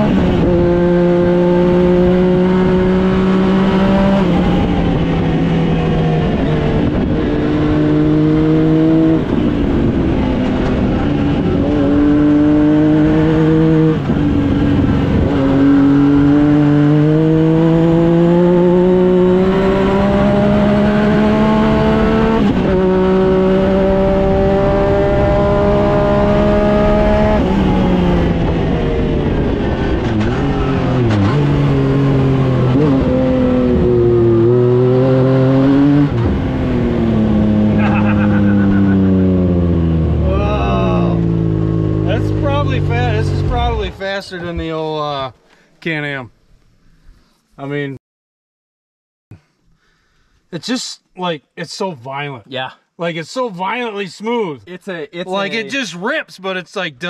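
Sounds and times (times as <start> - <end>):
engine accelerating and shifting: 0.0 - 44.7.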